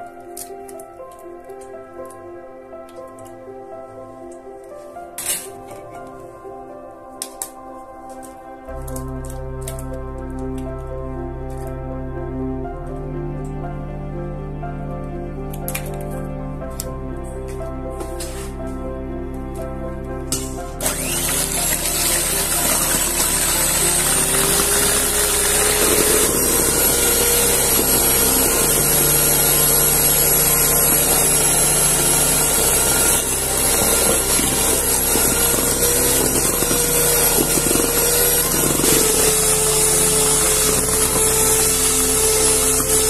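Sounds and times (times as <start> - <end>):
electric mixer running: 20.4 - 43.0.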